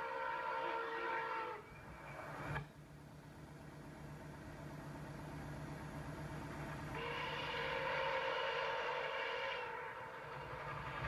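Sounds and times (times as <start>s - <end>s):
locomotive whistle blast: 0.0s - 1.7s, 7.0s - 11.0s
steam locomotive rumble: 0.0s - 11.0s.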